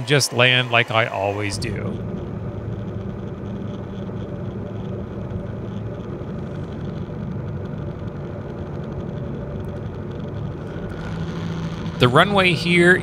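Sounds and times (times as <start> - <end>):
aircraft engine and propeller drone: 0.0 - 6.9.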